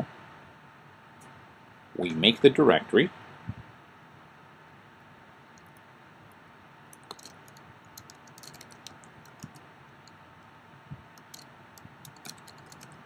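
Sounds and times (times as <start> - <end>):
quiet keyboard typing: 7.0 - 10.2, 11.2 - 13.0.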